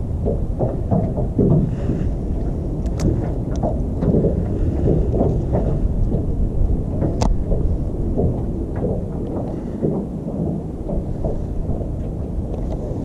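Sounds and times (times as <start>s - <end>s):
wind buffeting microphone: 0.0s - 13.0s
faint ticks: 2.8s - 6.2s.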